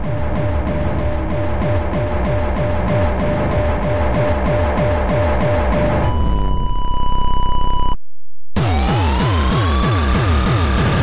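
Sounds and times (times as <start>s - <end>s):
electronic techno track: 0.0s - 6.1s, 8.6s - 11.0s
fast stuttering beat: 0.0s - 6.1s, 8.6s - 11.0s
kick drums falling in pitch: 0.0s - 6.1s.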